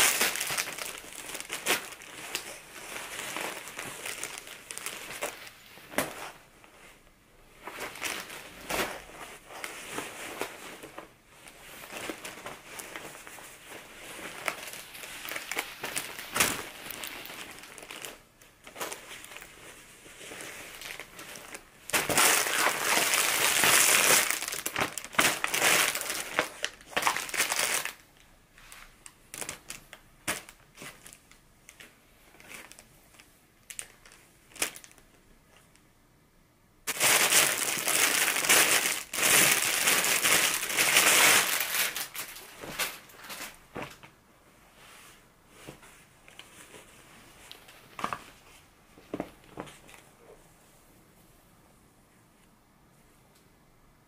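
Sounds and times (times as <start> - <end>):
packaging crinkling and rustling: 0.0 - 6.9, 7.6 - 35.8, 36.9 - 44.2.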